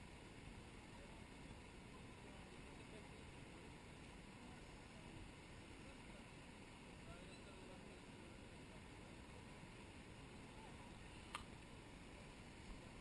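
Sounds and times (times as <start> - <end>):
faint background hiss: 0.0 - 13.0.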